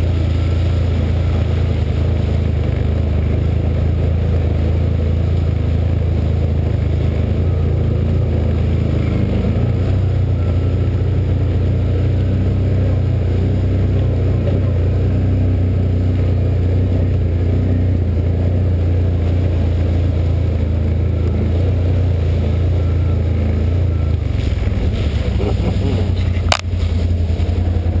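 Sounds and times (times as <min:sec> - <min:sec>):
engine low rumble: 0:00.0 - 0:28.0.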